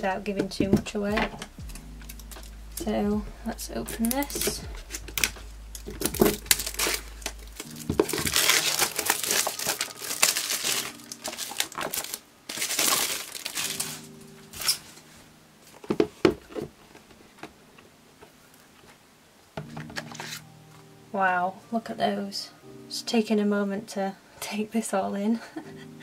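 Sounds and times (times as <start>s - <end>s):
plastic wrap crinkling and tearing: 3.9s - 17.4s, 19.7s - 20.5s.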